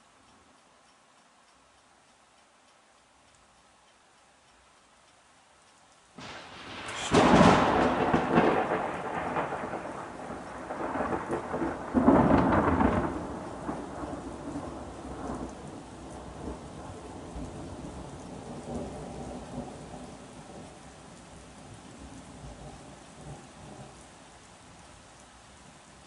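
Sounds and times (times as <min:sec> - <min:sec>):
rain hissing: 0:00.0 - 0:26.0
thunder crashing: 0:06.2 - 0:14.6.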